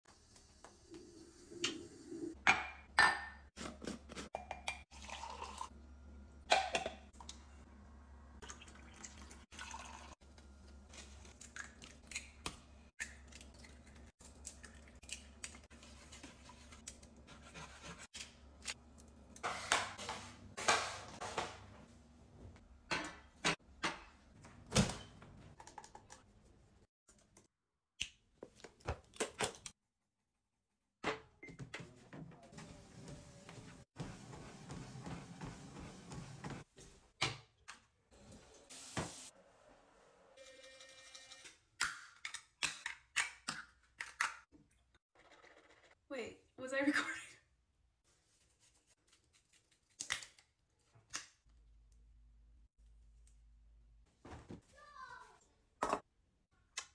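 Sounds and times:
kitchenware clinking and knocking: 0:02.4 - 0:03.5, 0:22.9 - 0:24.2.

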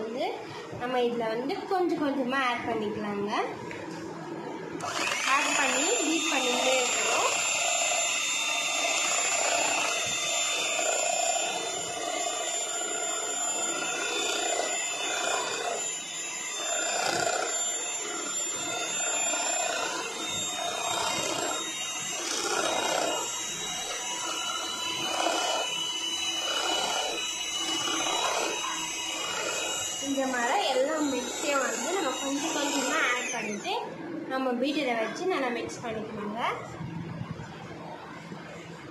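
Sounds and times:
electric hand mixer whining: 0:04.7 - 0:34.0
beaters churning batter: 0:04.8 - 0:33.6.

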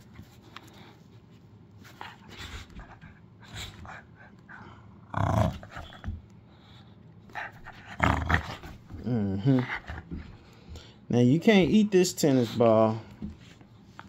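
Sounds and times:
dog growling and panting: 0:01.9 - 0:06.3, 0:07.3 - 0:10.9.

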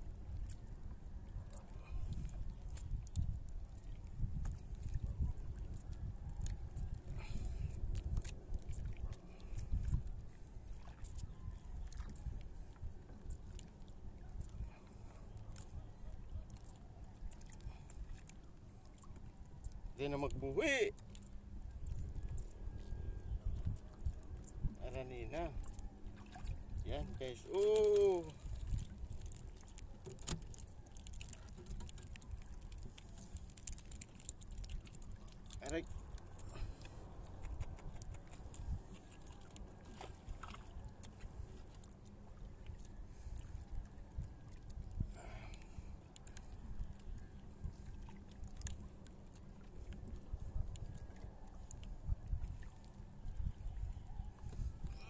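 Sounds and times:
fishing line hauled in: 0:00.1 - 0:55.0
light clicks and rustles: 0:27.1 - 0:53.0.

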